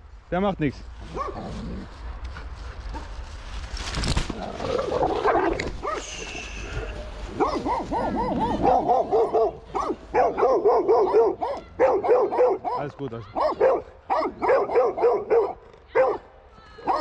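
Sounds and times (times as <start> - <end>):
rustling: 0.8 - 9.5
dogs barking and yipping: 4.6 - 16.3.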